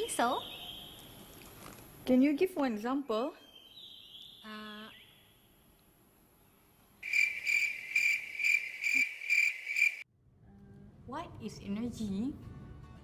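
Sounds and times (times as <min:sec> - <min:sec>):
cricket chirping: 0:07.0 - 0:10.0.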